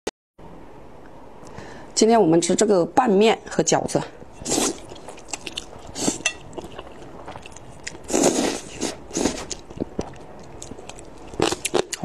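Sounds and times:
noodle slurping: 4.4s - 11.8s
chewing: 4.4s - 12.0s.

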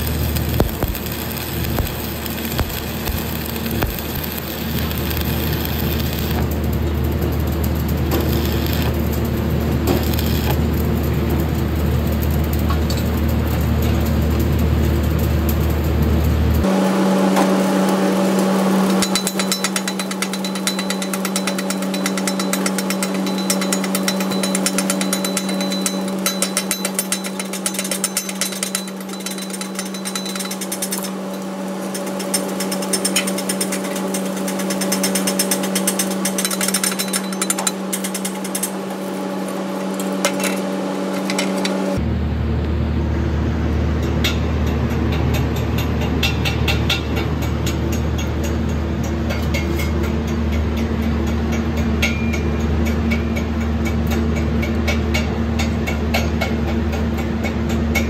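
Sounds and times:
chipping hammer tapping metal: 0.0s - 11.4s, 18.8s - 42.0s
welding arc crackling and hissing: 0.0s - 42.0s
low electrical hum: 0.0s - 58.0s.

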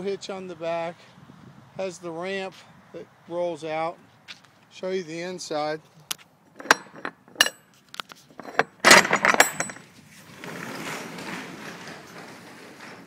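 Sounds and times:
metal latch clicking and knocking: 6.6s - 9.9s
loud metallic clatter: 8.4s - 13.0s
cargo door rumbling open: 8.5s - 13.0s.

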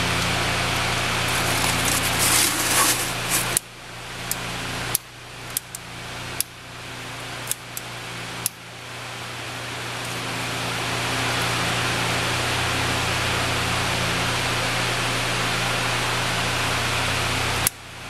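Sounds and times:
torch lighter hissing: 1.2s - 3.6s
crumpled paper rustling: 1.3s - 3.6s.

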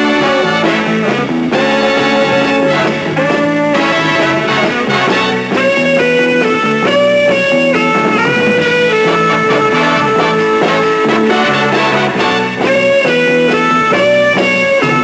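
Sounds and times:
instrumental music with held notes: 0.0s - 15.0s.

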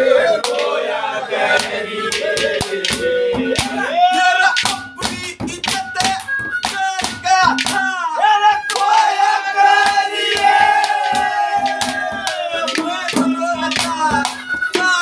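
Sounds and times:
sharp handclaps: 0.3s - 0.8s, 1.5s - 3.8s, 4.6s - 8.0s, 8.7s - 9.0s, 9.8s - 14.9s
man singing: 3.5s - 8.8s, 12.2s - 15.0s.

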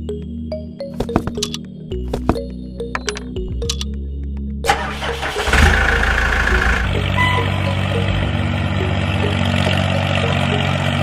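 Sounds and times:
diesel tractor engine starting: 4.7s - 11.0s.

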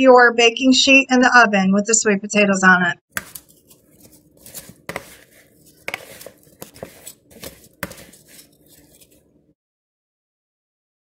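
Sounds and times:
fries scraping and rustling: 3.1s - 9.3s.

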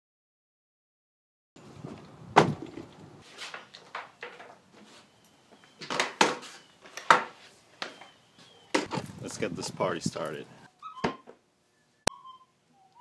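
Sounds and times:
knocks and thumps on wooden workbench: 2.4s - 2.9s.

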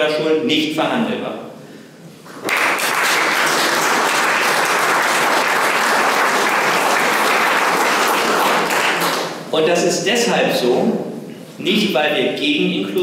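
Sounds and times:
audience applauding: 2.4s - 9.4s.

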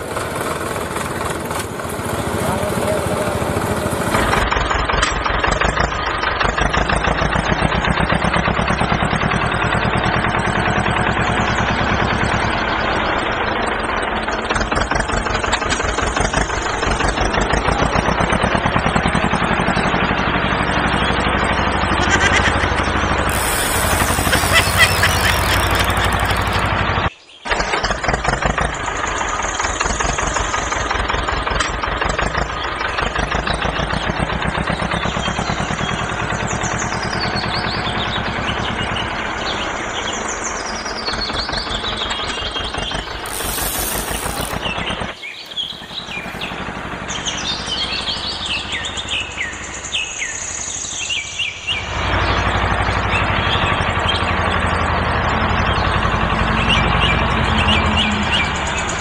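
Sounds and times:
birds chirping: 23.3s - 26.7s, 42.6s - 48.6s
toy electric motors rattling: 23.3s - 26.8s, 42.6s - 47.2s.

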